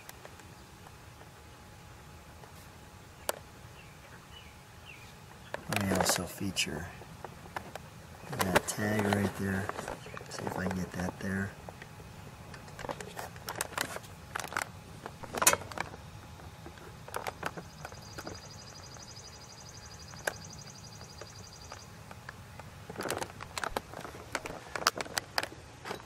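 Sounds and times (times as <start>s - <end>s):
sharp clicks and knocks: 5.5s - 6.4s, 12.5s - 19.1s, 20.1s - 26.0s.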